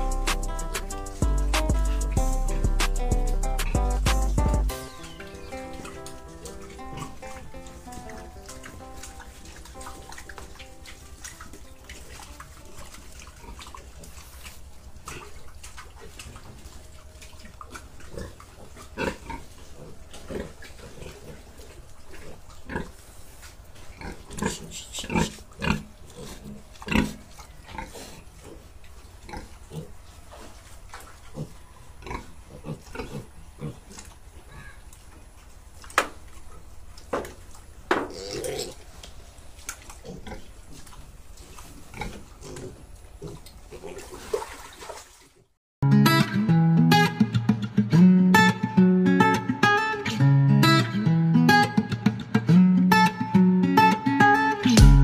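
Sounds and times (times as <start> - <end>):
pigs calling: 0.0 - 36.8, 37.5 - 44.2.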